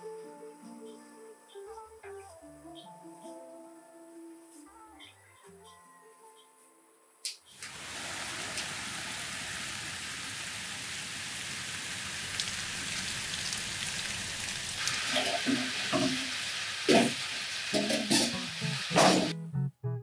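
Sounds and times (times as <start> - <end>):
steady rain: 7.6 - 19.3.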